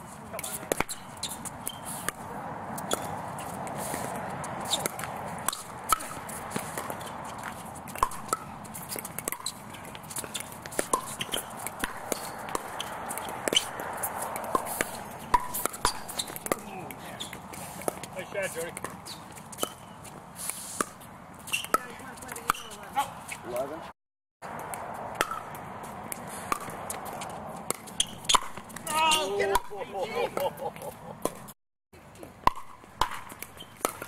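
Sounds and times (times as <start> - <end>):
background noise: 0.0 - 34.0.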